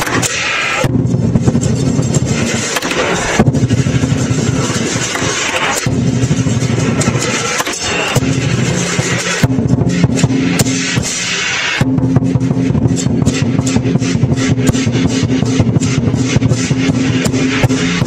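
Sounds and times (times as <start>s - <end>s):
cymbals clashing: 0.0s - 18.0s
drum pounding: 0.8s - 18.0s
gong: 5.8s - 18.0s.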